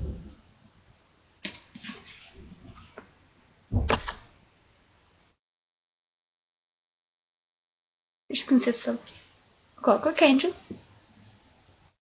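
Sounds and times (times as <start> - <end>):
book thump: 3.7 - 4.3.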